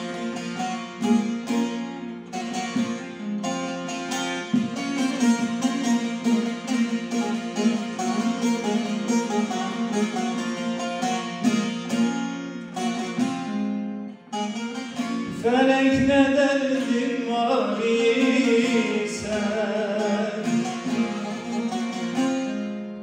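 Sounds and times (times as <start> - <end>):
plucked saz melody: 0.0 - 23.0
man singing long held notes: 15.3 - 21.1.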